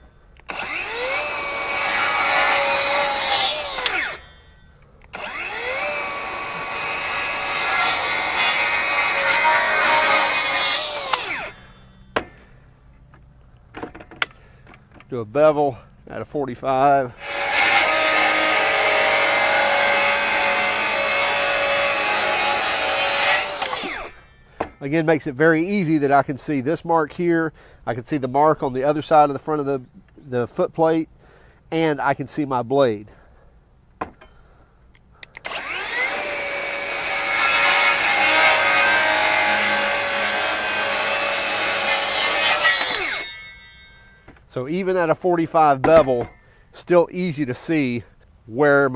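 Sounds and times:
wood being cut: 0.4 - 4.3, 5.1 - 12.3, 17.2 - 24.8, 35.4 - 43.5
circular saw blade whine: 0.4 - 12.2, 35.5 - 44.6.

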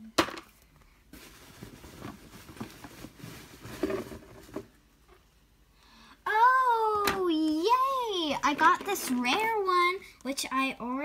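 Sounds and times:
soft rustling: 0.8 - 4.8.

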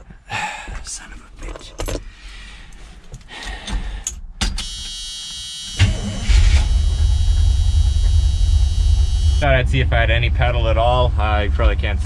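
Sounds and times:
steady electric buzz: 4.6 - 11.3
car engine cranking and running: 5.7 - 12.0.

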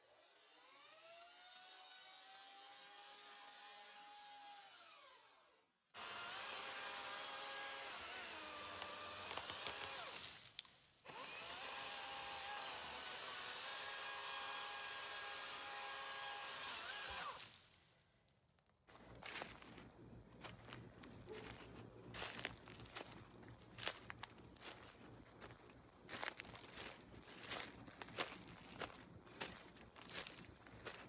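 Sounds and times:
electric chainsaw cutting wood: 0.0 - 17.7.

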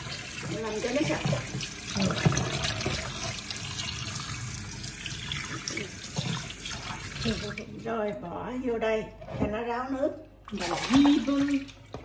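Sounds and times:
tap water splashing into sink: 0.0 - 7.6, 10.5 - 12.0.

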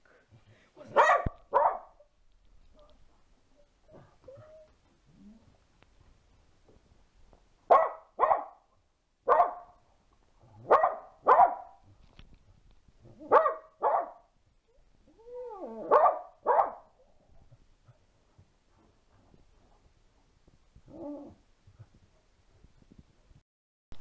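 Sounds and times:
dog barking: 0.8 - 2.0, 7.7 - 8.6, 9.3 - 9.8, 10.6 - 11.8, 13.3 - 14.3, 15.8 - 16.9.

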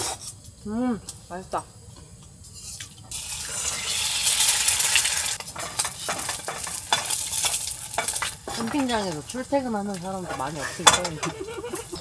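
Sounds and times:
food sizzling in frying pan: 2.6 - 12.0.

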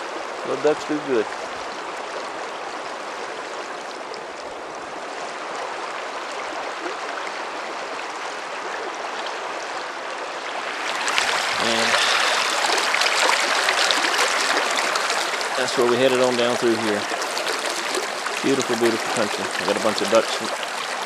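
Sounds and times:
river water rushing over rocks: 1.4 - 21.0.

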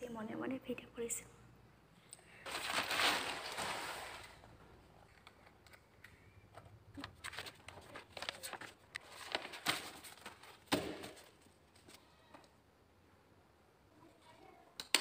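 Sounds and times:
paper rustling: 2.4 - 4.4, 7.0 - 12.0.

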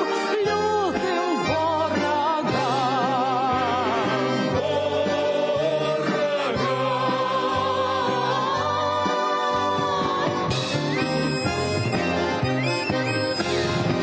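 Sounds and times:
accordion chords: 0.0 - 14.0
folk singing with vibrato: 0.1 - 14.0
voices singing together: 0.9 - 12.3.

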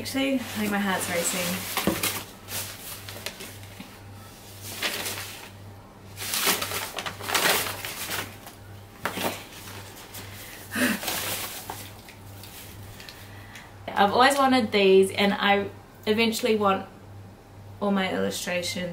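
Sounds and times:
packing paper crinkling and tearing: 0.4 - 5.6, 6.2 - 13.1.

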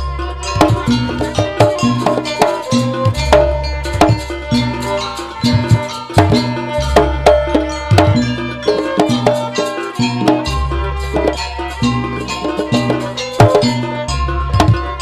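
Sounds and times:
drums and pitched percussion: 0.0 - 15.0
sustained ringing tones: 0.0 - 15.0.

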